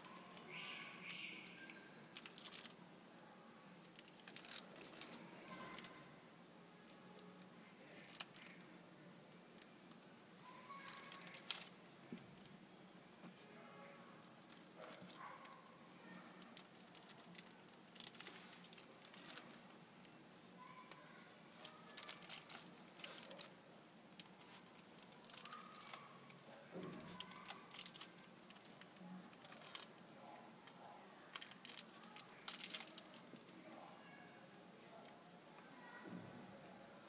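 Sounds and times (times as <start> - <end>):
plastic crinkling: 0.0 - 2.8, 3.9 - 6.0, 9.6 - 11.8, 14.5 - 20.1, 20.8 - 23.6, 24.2 - 33.3.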